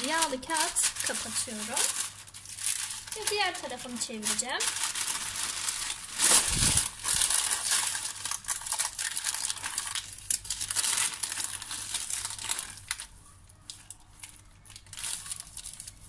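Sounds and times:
parchment paper crinkling: 0.0s - 16.0s.

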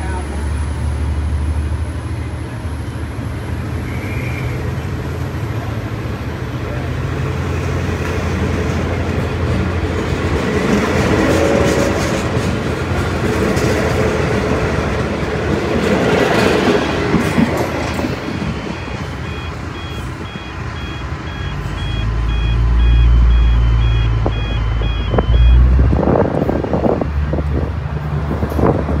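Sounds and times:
train carriages rolling on rails: 0.0s - 22.0s
level crossing warning bells: 8.3s - 11.1s, 17.8s - 25.8s.

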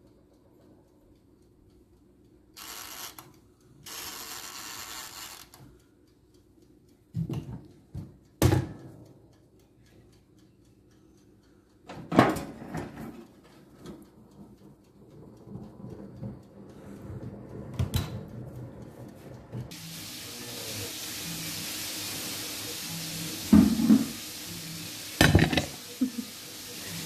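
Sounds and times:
oven door metal clunk and rattle: 11.9s - 13.2s.

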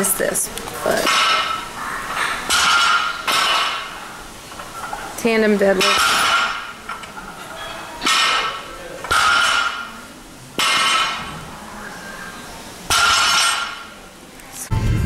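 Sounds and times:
barbell plates clanking: 1.0s - 10.0s, 10.6s - 11.5s, 12.9s - 14.0s.

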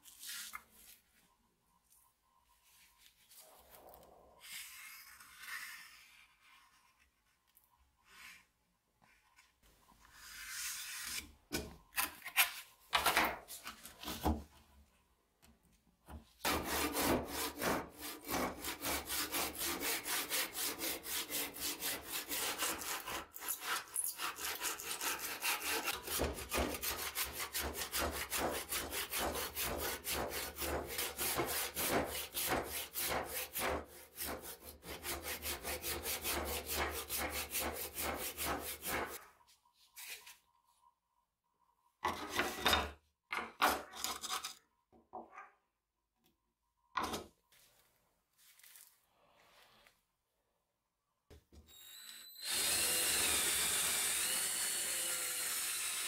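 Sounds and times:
hand saw cutting wood: 16.4s - 39.2s, 52.4s - 56.0s.

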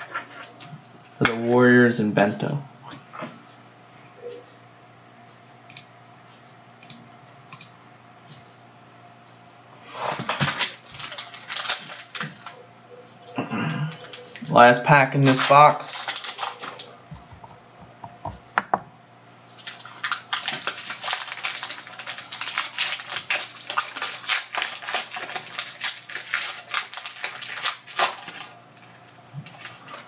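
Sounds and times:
wrapper tearing and crinkling: 10.1s - 12.6s, 13.8s - 16.9s, 19.5s - 30.0s.

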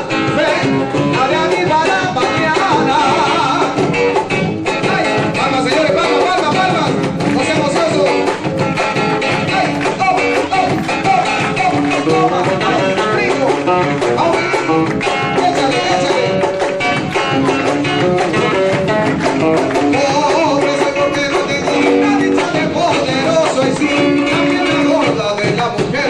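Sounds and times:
person singing: 0.0s - 4.0s, 9.3s - 18.8s, 19.5s - 26.0s
acoustic guitar strumming: 0.0s - 26.0s
cajon beat: 0.0s - 26.0s.

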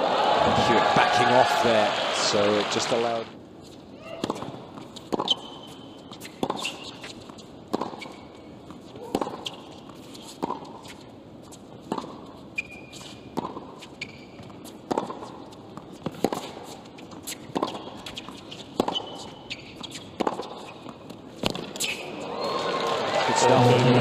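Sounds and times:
sneaker squeaks: 3.6s - 11.1s, 11.9s - 22.6s
racket striking tennis ball: 4.2s - 5.6s, 7.7s - 8.2s, 9.0s - 9.6s, 13.3s - 13.8s, 14.8s - 22.0s.

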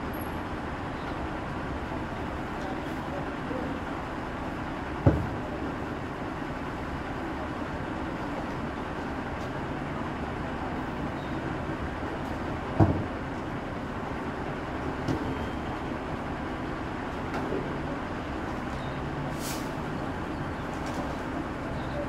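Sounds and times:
diesel truck engine idling: 0.0s - 22.0s
short hiss: 19.3s - 19.8s.

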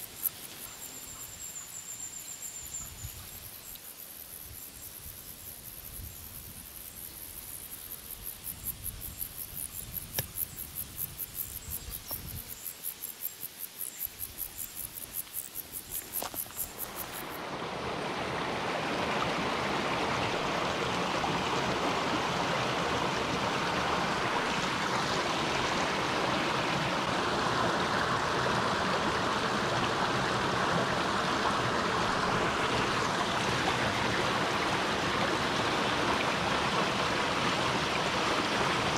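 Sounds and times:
insect chirping: 0.0s - 17.4s
stream water rushing: 15.0s - 38.9s.

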